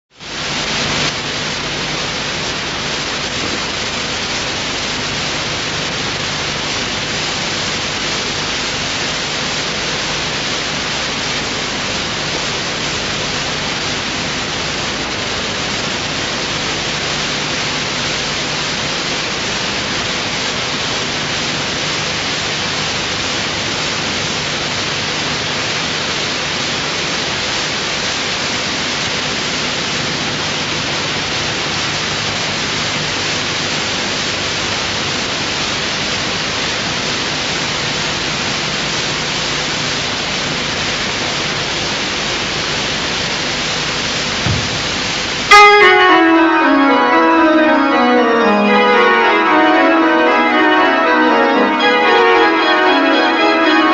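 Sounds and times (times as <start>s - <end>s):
static hiss: 0.2s - 53.9s.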